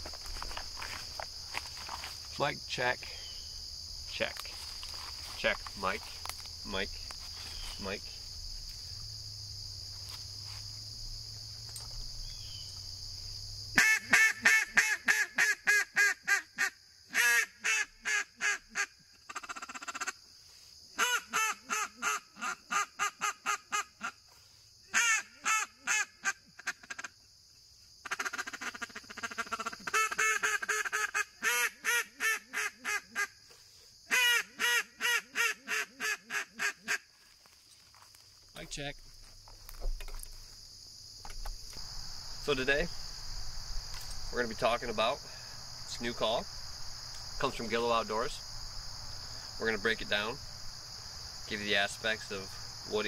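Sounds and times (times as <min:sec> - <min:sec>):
crickets trilling: 0:00.0 - 0:53.0
duck call quacks: 0:13.8 - 0:20.2, 0:21.0 - 0:24.2, 0:24.9 - 0:27.2, 0:28.0 - 0:33.4, 0:34.1 - 0:37.1.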